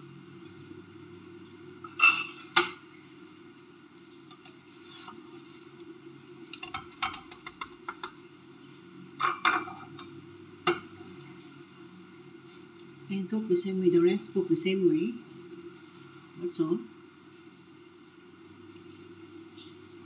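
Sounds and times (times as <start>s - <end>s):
spatula scraping frying pan: 4.3s - 5.6s.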